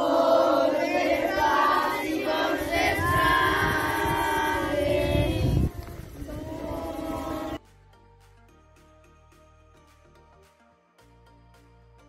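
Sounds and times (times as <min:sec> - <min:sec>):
boys singing in unison: 0:00.0 - 0:07.6.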